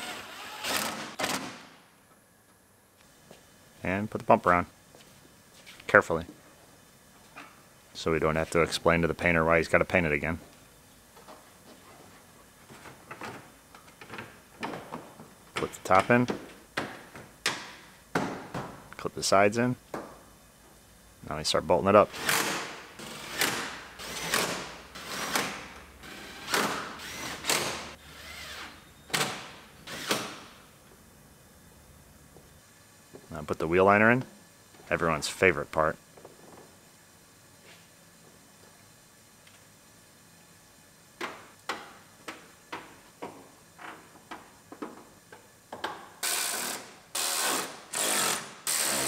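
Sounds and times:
cordless drill bursts: 0:26.1 - 0:28.8, 0:46.2 - 0:49.0.

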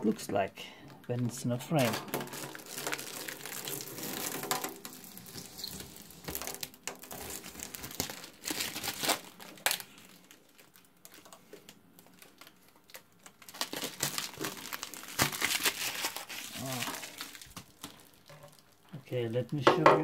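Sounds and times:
plastic film crinkling: 0:00.0 - 0:19.6.

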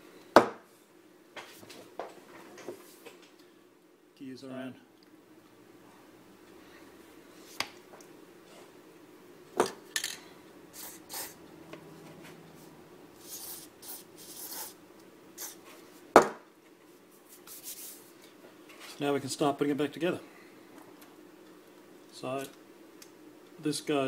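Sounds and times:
aerosol spray hisses: 0:10.8 - 0:11.4.

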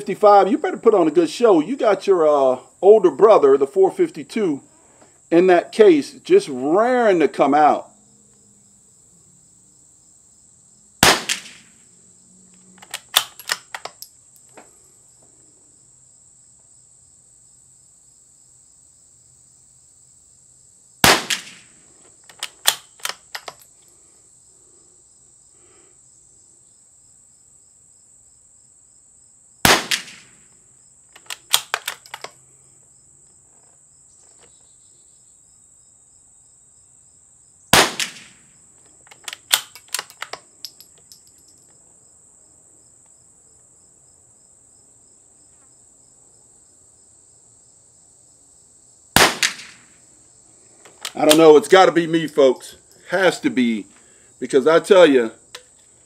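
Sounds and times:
high insect drone: 0:00.0 - 0:56.0
rifle shot: 0:11.0 - 0:11.7, 0:12.9 - 0:13.9, 0:21.0 - 0:21.8, 0:29.6 - 0:30.4, 0:37.7 - 0:38.4, 0:49.2 - 0:50.0
metallic clicks of rifle bolt: 0:12.8 - 0:14.7, 0:22.2 - 0:23.8, 0:31.1 - 0:32.4, 0:38.0 - 0:41.6, 0:50.8 - 0:51.5.

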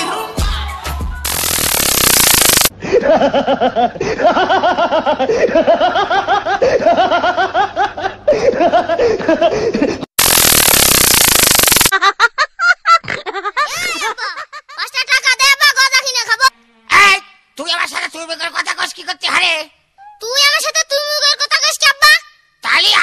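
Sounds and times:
static hiss burst: 0:01.3 - 0:02.7, 0:10.2 - 0:11.9.

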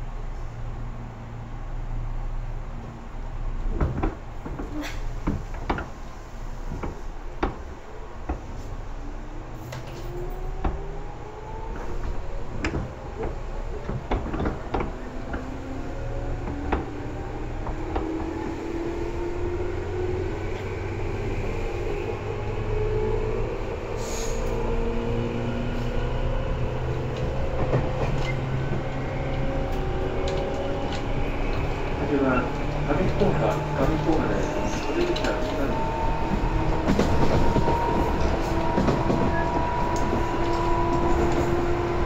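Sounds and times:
wheels clicking on rail joints: 0:26.8 - 0:42.0.

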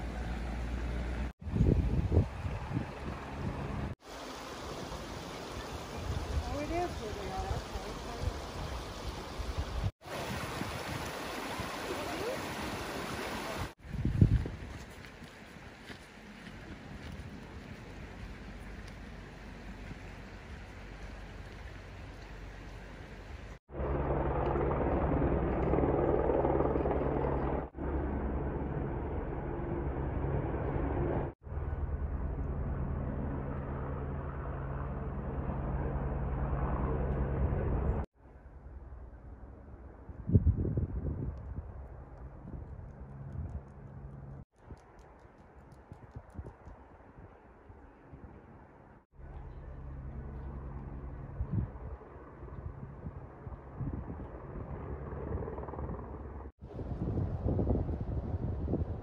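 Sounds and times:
wind buffeting microphone: 0:01.4 - 0:04.0, 0:13.1 - 0:23.5, 0:40.0 - 0:48.7, 0:50.2 - 0:59.0
creek running over rocks: 0:04.0 - 0:13.8
low engine drone: 0:18.2 - 0:40.0, 0:49.2 - 0:52.8.

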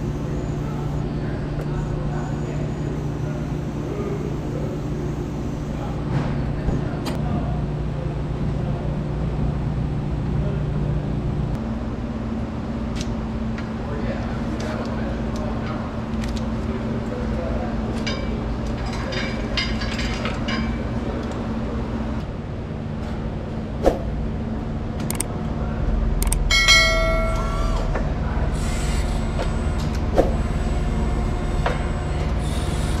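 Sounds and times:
forklift engine humming: 0:00.0 - 0:18.8, 0:20.2 - 0:33.0.

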